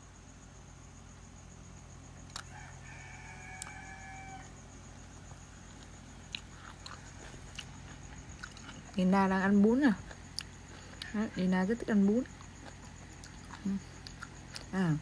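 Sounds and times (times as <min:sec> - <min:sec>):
rooster crowing: 0:02.4 - 0:04.7.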